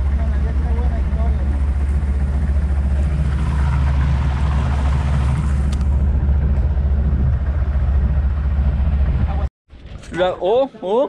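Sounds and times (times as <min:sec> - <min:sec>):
boat engine droning: 0:00.0 - 0:09.5.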